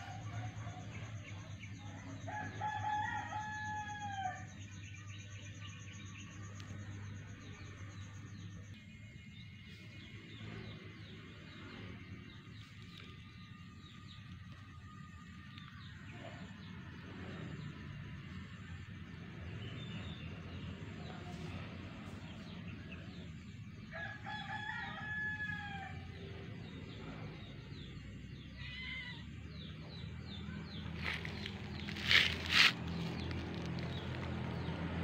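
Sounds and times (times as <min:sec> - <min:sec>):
rooster crowing: 0:02.3 - 0:04.5, 0:23.9 - 0:26.2
small birds chirping: 0:26.7 - 0:35.0.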